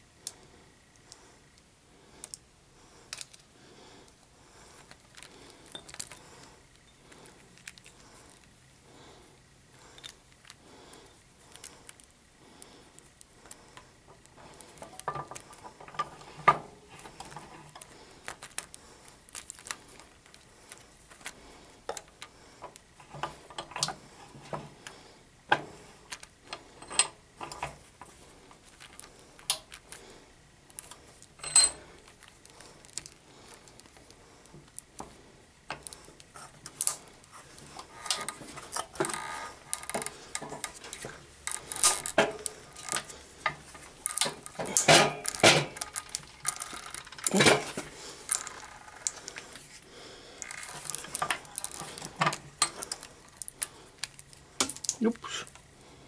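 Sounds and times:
plastic figures clicking and tapping: 37.7s - 49.4s.

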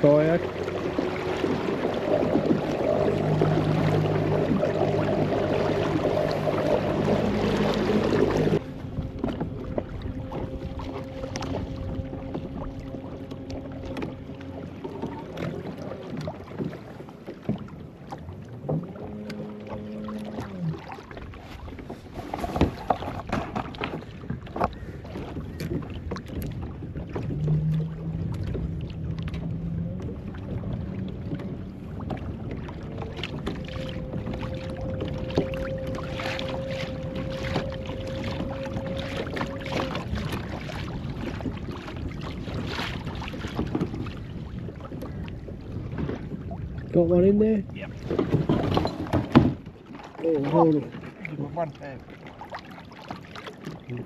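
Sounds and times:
wind on microphone: 0.0s - 16.9s, 18.5s - 49.8s
small boat motor humming: 0.0s - 54.0s
water splashes: 0.0s - 54.0s.

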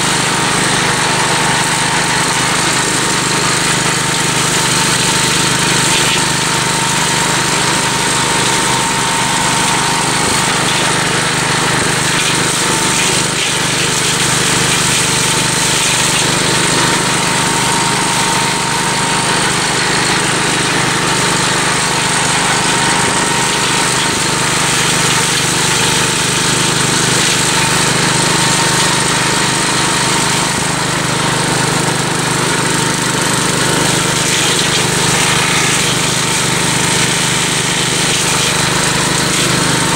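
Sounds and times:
brush mower cutting bush: 0.0s - 39.9s
walk-behind tractor engine running: 0.0s - 39.9s.

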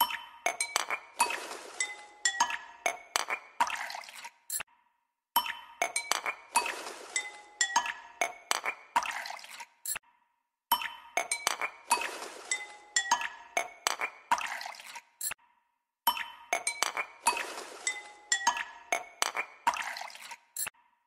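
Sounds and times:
wet squelching mixture: 0.7s - 4.5s, 6.2s - 9.8s, 11.3s - 15.2s, 16.6s - 20.6s.

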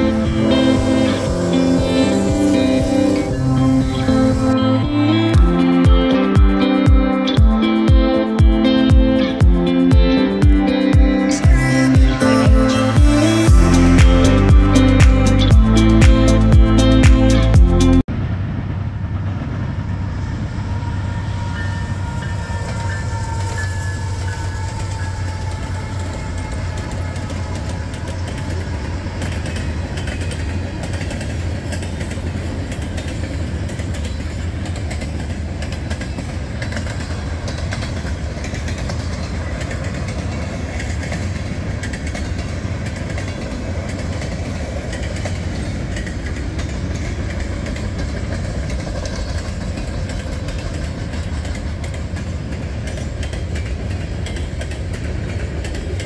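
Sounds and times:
train wheels rumbling on rail: 0.0s - 56.0s
wheels clicking over rail joints: 20.3s - 56.0s.

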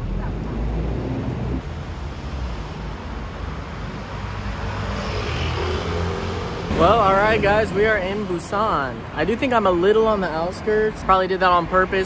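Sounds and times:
vehicles passing on road: 0.0s - 12.0s.

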